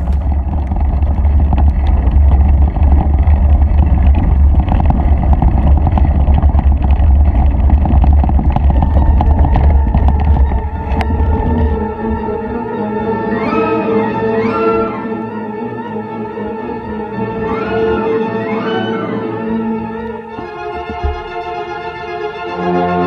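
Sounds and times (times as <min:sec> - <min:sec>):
bike tyres crunching on gravel: 0:00.0 - 0:12.0
wind rumble on microphone: 0:00.0 - 0:13.6.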